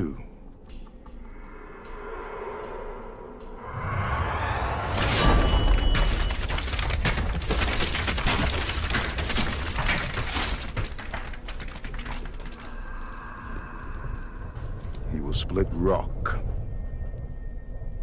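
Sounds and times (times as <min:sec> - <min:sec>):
ground cracking and splintering: 0:04.8 - 0:15.6.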